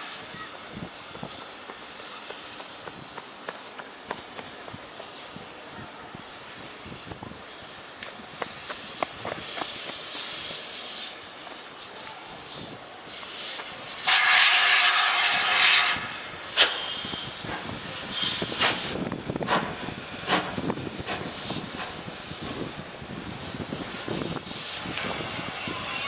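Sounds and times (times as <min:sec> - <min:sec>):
loud hissing steam: 0:00.0 - 0:26.0
steam locomotive chuffing: 0:00.0 - 0:26.0.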